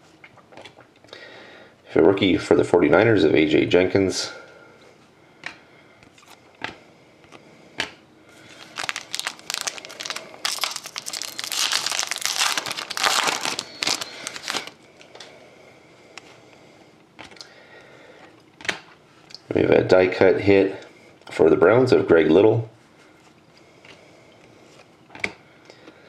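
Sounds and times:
foil wrapper tearing and crinkling: 8.5 - 14.8.

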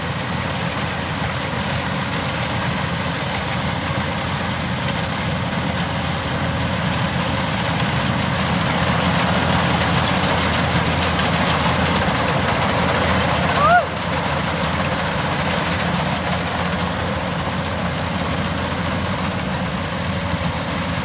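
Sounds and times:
combine harvester diesel engine: 0.0 - 21.0.

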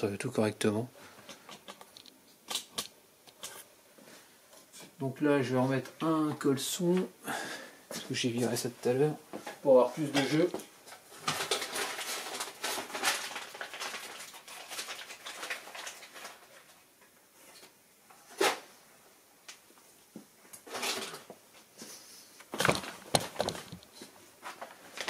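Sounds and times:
rustling handling noise: 7.9 - 18.7, 19.9 - 25.0.

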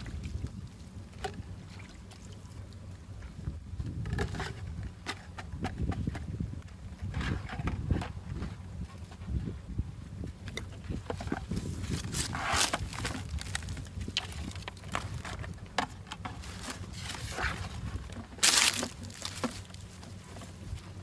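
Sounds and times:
low outdoor rumble: 0.0 - 21.0
plastic fish traps knocking: 18.2 - 19.7.

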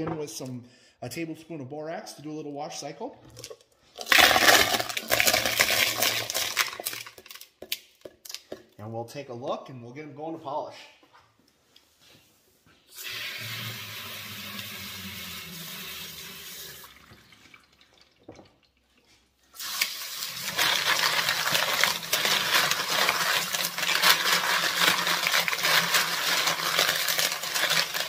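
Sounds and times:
tap water running into sink: 13.0 - 18.7.

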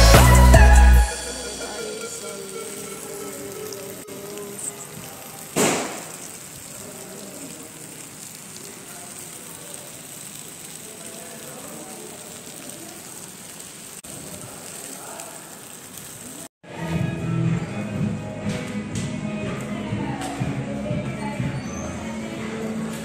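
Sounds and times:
food sizzling on a hot platter: 0.2 - 16.5.

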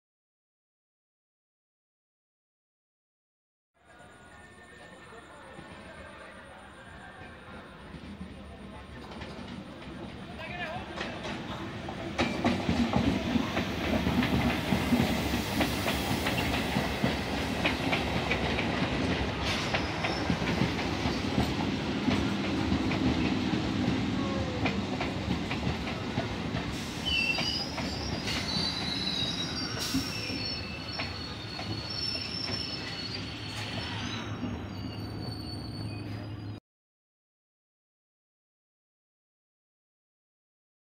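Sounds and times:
train running into station: 3.8 - 36.6
brake squeals: 26.8 - 36.6.

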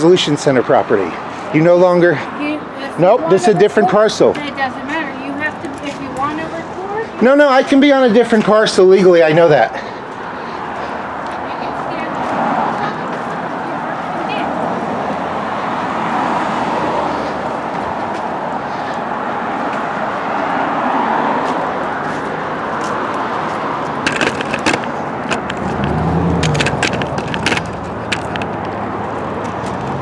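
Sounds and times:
street traffic: 0.0 - 30.0.

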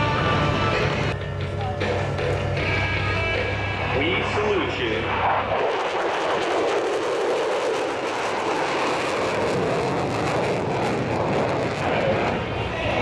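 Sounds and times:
fighter jet flying past: 3.4 - 13.0.

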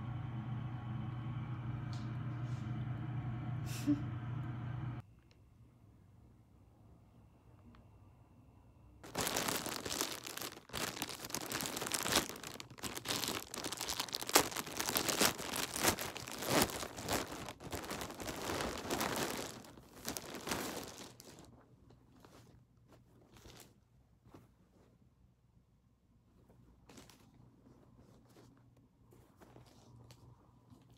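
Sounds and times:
plastic bag crinkling and tearing: 9.0 - 23.8
soft rustles: 9.0 - 25.4, 26.2 - 30.9.

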